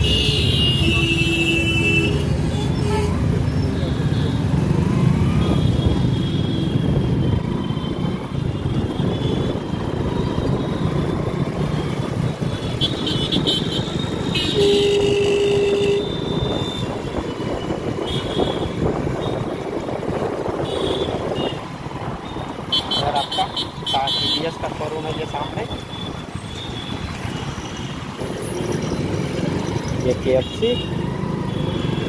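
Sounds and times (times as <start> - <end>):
road traffic: 0.0 - 32.0
wind: 0.0 - 32.0
vehicle horn: 14.3 - 16.7.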